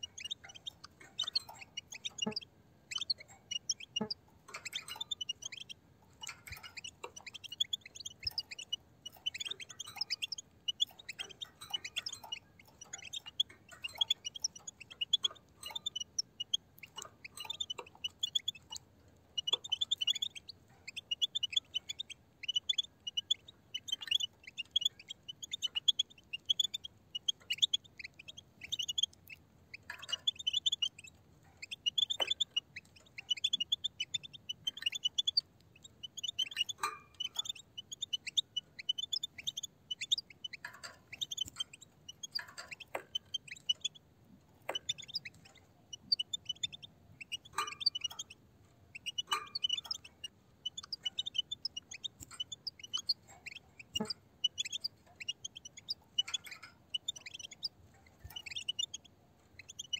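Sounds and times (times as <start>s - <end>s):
finches twittering: 0.0s - 18.8s, 19.4s - 44.0s, 44.7s - 59.9s.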